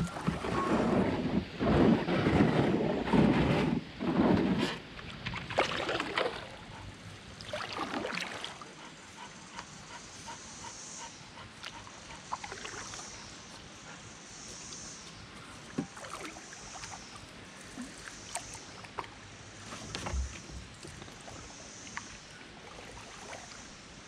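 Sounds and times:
canoe paddle strokes and knocks: 0:00.0 - 0:06.6, 0:15.5 - 0:23.5
water around canoe hull: 0:00.0 - 0:24.0
dog panting: 0:08.8 - 0:12.7.

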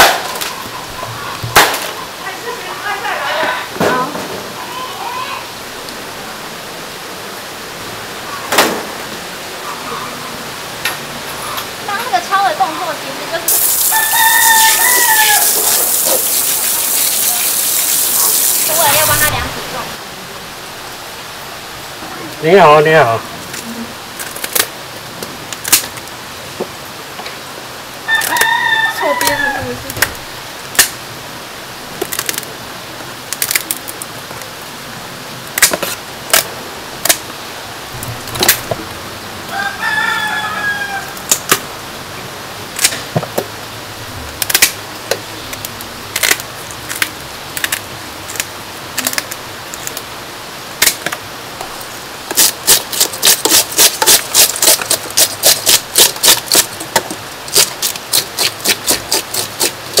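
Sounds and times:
rooster crowing: 0:13.5 - 0:16.3, 0:28.0 - 0:29.9, 0:39.4 - 0:41.3
scaler scraping fish scales: 0:13.5 - 0:19.3, 0:52.3 - 0:56.9, 0:57.5 - 1:00.0.

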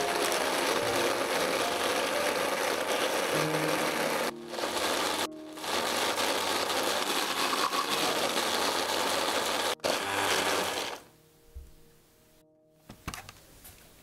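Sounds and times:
electric chopper whirring: 0:00.0 - 0:11.1.

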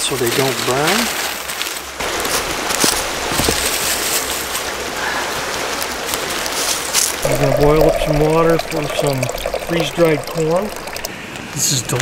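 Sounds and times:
creek rushing: 0:02.0 - 0:11.3.

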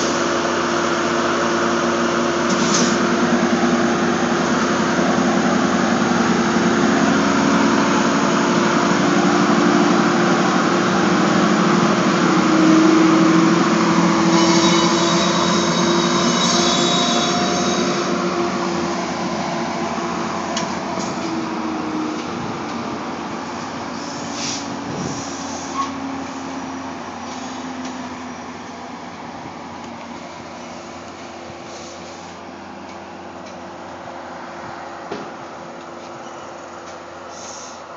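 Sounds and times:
diesel locomotive engine drone: 0:00.0 - 0:37.9
train wheels rolling on rails: 0:00.0 - 0:37.9
high squeal: 0:12.6 - 0:18.3, 0:36.0 - 0:36.8.

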